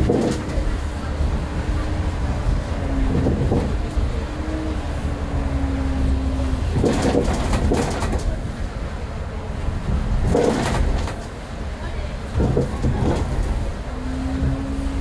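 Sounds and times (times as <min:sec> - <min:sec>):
rattling noise: 0:00.0 - 0:04.3, 0:05.5 - 0:08.6, 0:09.8 - 0:11.4, 0:12.3 - 0:15.0
bus engine rumble: 0:00.0 - 0:15.0.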